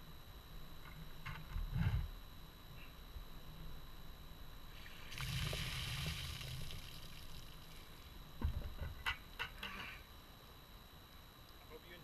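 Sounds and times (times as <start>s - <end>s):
water poured and splashing: 5.1s - 7.7s.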